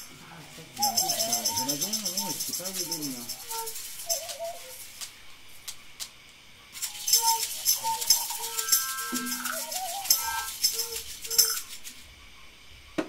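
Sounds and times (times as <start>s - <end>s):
rattle shaken: 0.0s - 12.2s
brief held tones: 7.0s - 11.7s.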